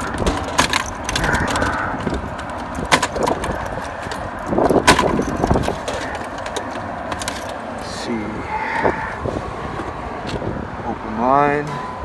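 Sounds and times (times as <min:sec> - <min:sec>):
sharp clicks and knocks: 0:00.0 - 0:07.6.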